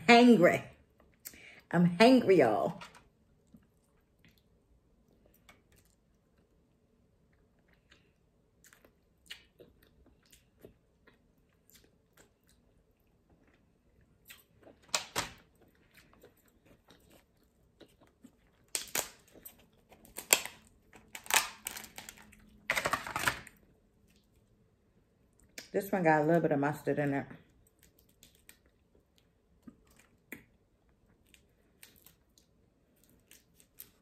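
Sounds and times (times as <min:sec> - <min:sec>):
faint chewing: 0:03.4 - 0:22.6, 0:27.4 - 0:34.0
crab shell cracking and crunching: 0:14.3 - 0:23.6, 0:27.6 - 0:30.5, 0:31.1 - 0:34.0.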